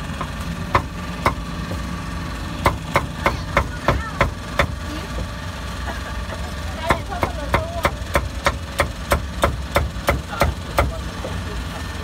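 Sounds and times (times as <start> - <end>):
meat cleaver chopping on block: 0.2 - 1.4.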